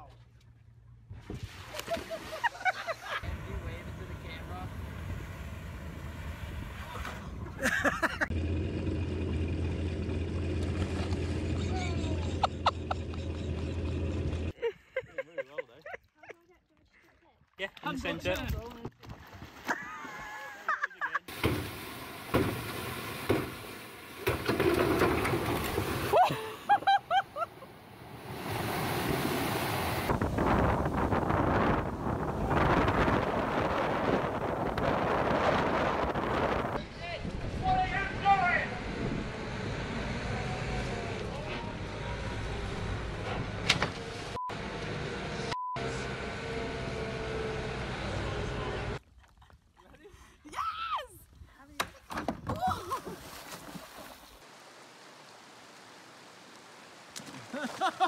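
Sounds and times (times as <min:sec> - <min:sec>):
wind: 0:00.0 - 0:58.0
boat engines rumbling: 0:02.5 - 0:14.6, 0:21.2 - 0:49.7
boat hull knocking: 0:21.3 - 0:26.1
water gushing out: 0:21.3 - 0:26.7
person yelling: 0:50.4 - 0:51.2.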